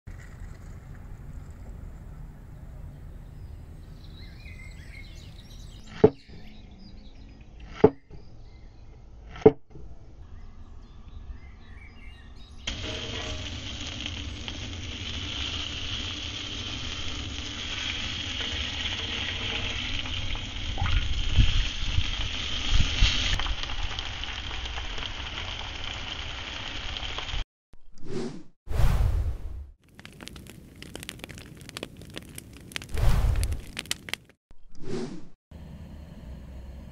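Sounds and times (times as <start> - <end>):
food sizzling in a pan: 12.7 - 27.4.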